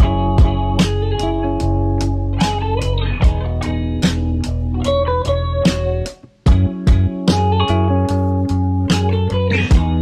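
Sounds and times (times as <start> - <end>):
guitar over a steady beat: 0.0 - 10.0.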